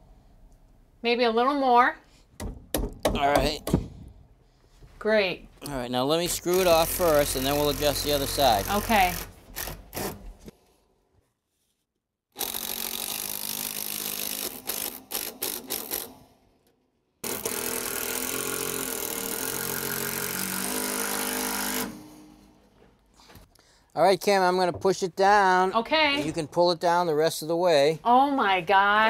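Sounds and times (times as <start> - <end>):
drill driving screws into wood: 6.4 - 10.6, 12.3 - 16.4, 17.2 - 22.4.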